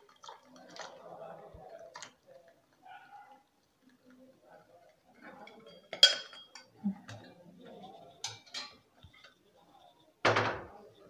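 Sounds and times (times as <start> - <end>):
ladle clinking against metal pots: 5.5 - 6.7, 8.2 - 8.8.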